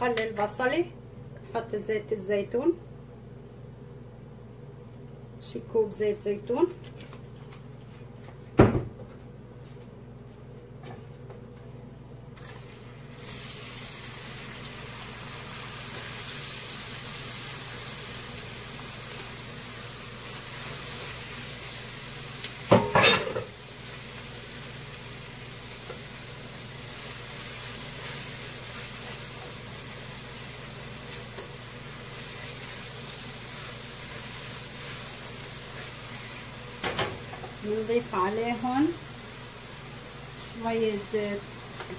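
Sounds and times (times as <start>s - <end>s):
onion sizzling in frying pan: 12.4s - 41.9s.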